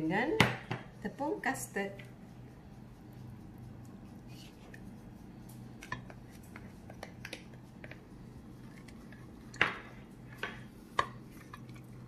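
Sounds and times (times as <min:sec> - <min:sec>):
low steady hum: 0:00.0 - 0:12.0.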